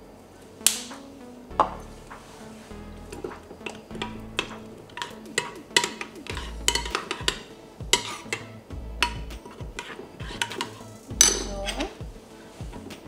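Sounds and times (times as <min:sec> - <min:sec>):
spoon clinking in a bowl: 0:05.0 - 0:07.4.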